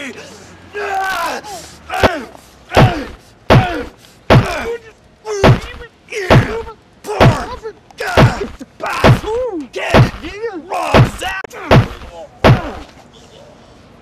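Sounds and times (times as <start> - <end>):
punches landing: 2.0 - 4.7, 5.4 - 12.9.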